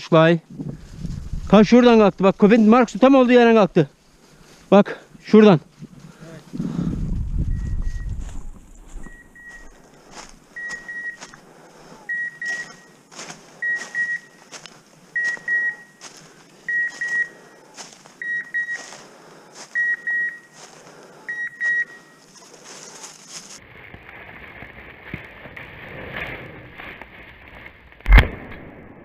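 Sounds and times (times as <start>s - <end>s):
faint crackles: 0.5s - 28.6s
beeper collar short high beeps: 12.1s - 13.0s, 13.6s - 14.4s, 15.2s - 16.0s, 19.8s - 20.6s, 21.3s - 22.2s.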